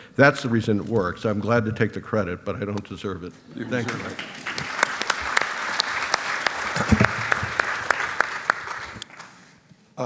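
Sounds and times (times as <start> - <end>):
audience applauding: 3.7 - 9.5.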